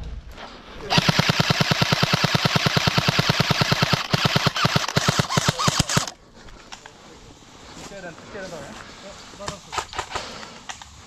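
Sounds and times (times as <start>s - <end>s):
airsoft gun firing: 0.9s - 6.2s.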